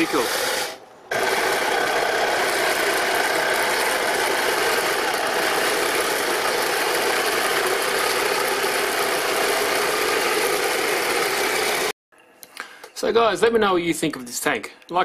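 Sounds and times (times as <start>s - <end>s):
toy tank running on tracks: 1.1s - 11.9s.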